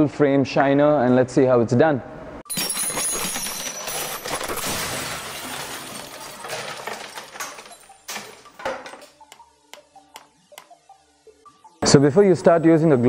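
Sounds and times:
glass shattering crash: 2.5 - 9.1.

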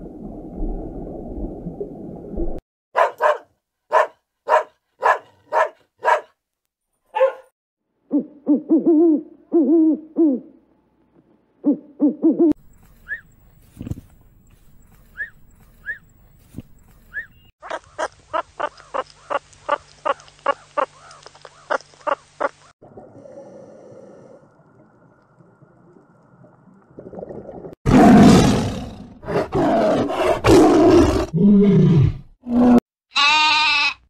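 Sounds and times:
large animal roaring: 27.9 - 32.8
lamb bleating: 33.1 - 34.0.

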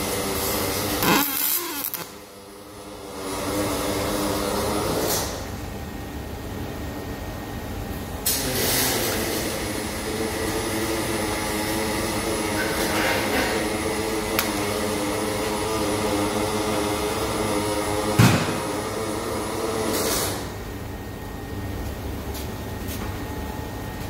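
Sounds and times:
welding arc hissing and humming: 0.0 - 5.5, 8.2 - 20.7.

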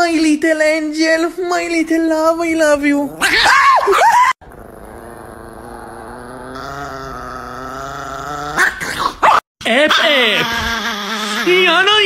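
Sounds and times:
dog growling: 2.8 - 3.8, 4.4 - 12.0
dog whining: 2.9 - 11.9.

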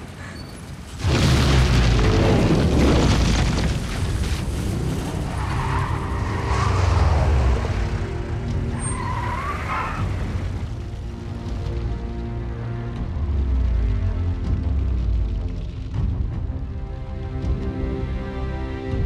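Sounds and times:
low rumble of fire: 0.0 - 17.8
explosion boom: 1.0 - 5.4
car engines: 3.6 - 16.0
dramatic music: 4.2 - 19.0
tyres squealing: 8.7 - 10.2.

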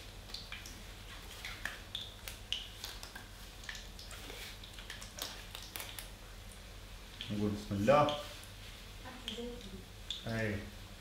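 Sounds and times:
dough frying in oil: 0.0 - 11.0
plastic glove rustling: 0.8 - 6.1.

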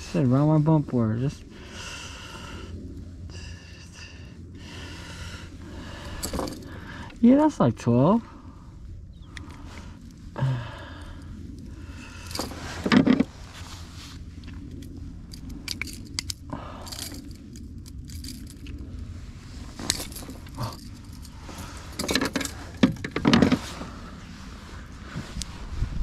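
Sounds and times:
fishing tackle jingling and scraping: 5.8 - 7.2, 11.8 - 14.0, 14.6 - 24.2.

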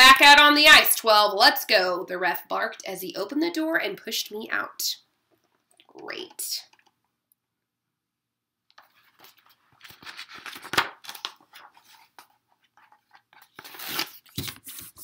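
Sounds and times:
book pages turning: 8.7 - 15.0.

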